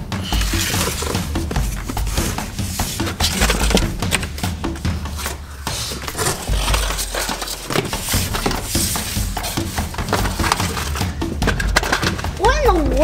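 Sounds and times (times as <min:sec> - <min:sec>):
cardboard scraping and rustling: 0:00.2 - 0:12.3.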